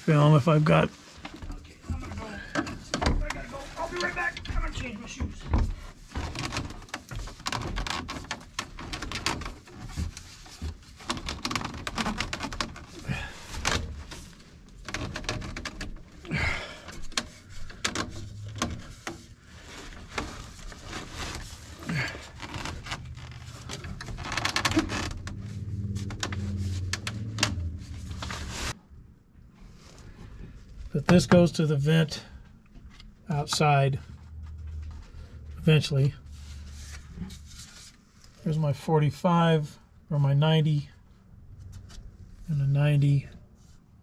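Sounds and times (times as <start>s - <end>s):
low steady hum: 16.0s - 43.4s.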